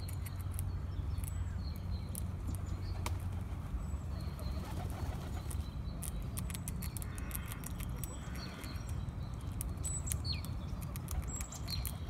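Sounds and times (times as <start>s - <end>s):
squirrel gnawing nut shell: 0.0s - 2.6s, 5.4s - 12.0s.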